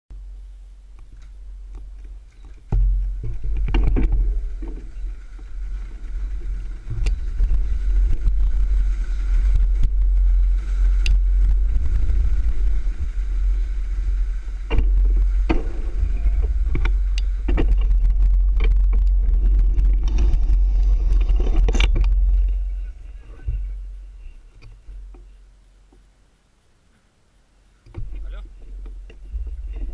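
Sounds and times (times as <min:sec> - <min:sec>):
wind rumble on camera: 0:00.2 - 0:26.2, 0:27.8 - 0:29.9
bicycle knocks and rattles: 0:01.0 - 0:26.1, 0:27.9 - 0:29.9.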